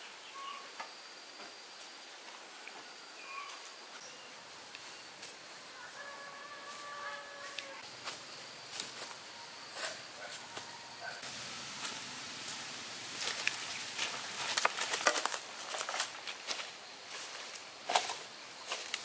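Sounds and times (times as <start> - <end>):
footsteps through dry leaves: 4.7 - 19.0.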